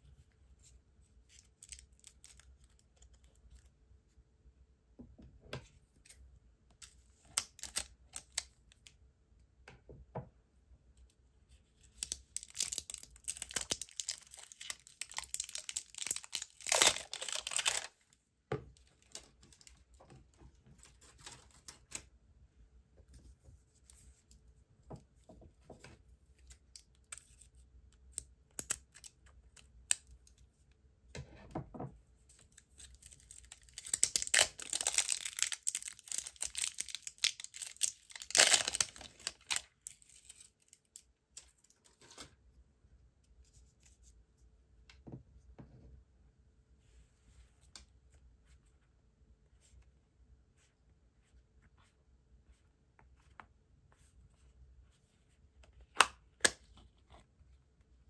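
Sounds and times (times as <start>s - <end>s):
plastic wrap crinkly tearing: 7.4s - 8.4s, 12.0s - 18.0s, 32.9s - 40.8s.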